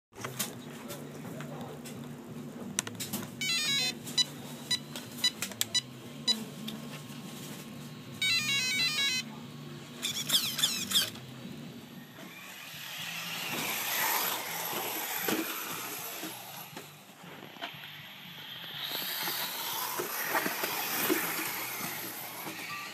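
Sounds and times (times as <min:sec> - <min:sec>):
electric motor whining: 0:11.9 - 0:22.9.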